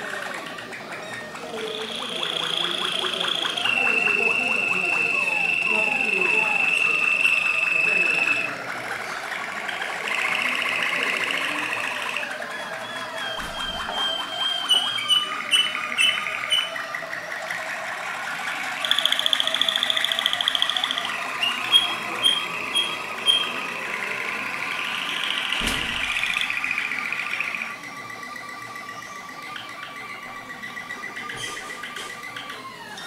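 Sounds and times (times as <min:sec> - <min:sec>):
canaries singing trills: 0:00.6 - 0:17.4, 0:18.5 - 0:27.6.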